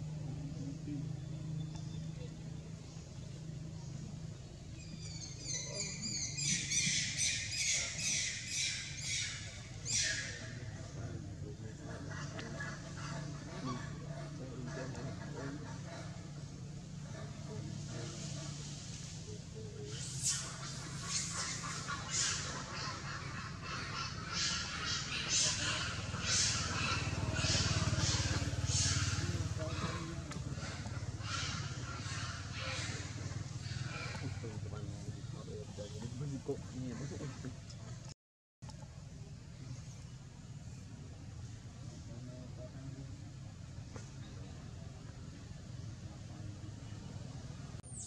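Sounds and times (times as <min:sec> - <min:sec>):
steady low hum: 0:00.0 - 0:48.0
monkeys giving harsh calls: 0:05.0 - 0:11.0, 0:11.8 - 0:18.6, 0:19.8 - 0:35.2
young monkey screaming: 0:19.9 - 0:29.9.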